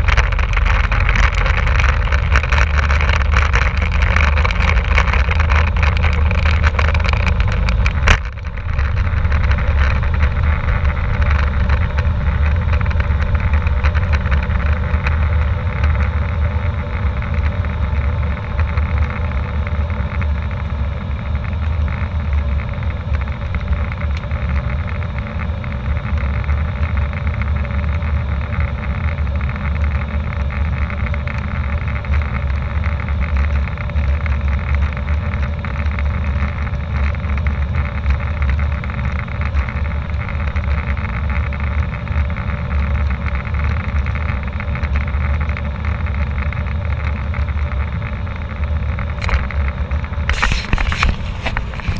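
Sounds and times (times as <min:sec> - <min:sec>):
wheels rattling on runway: 0:00.0 - 0:51.9.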